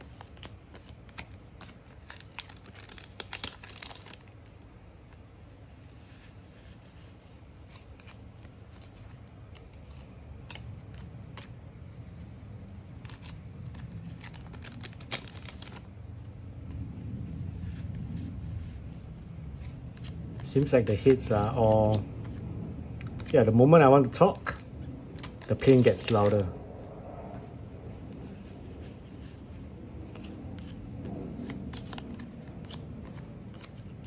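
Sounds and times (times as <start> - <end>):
foil wrappers crinkling and tearing: 0.0 - 4.5, 12.7 - 15.9, 19.7 - 22.2, 24.1 - 26.5, 31.1 - 34.0
airplane rumble overhead: 0.0 - 34.0
cards sliding and tapping: 30.0 - 34.0.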